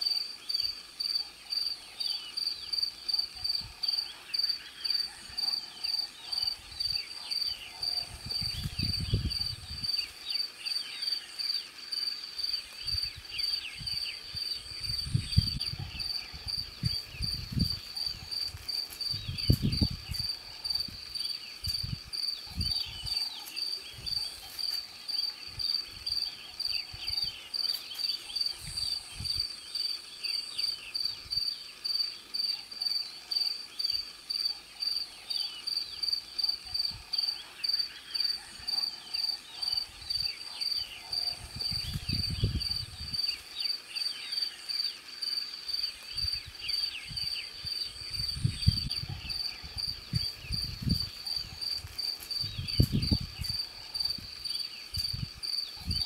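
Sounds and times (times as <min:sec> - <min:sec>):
cricket chirping: 0:00.0 - 0:56.0.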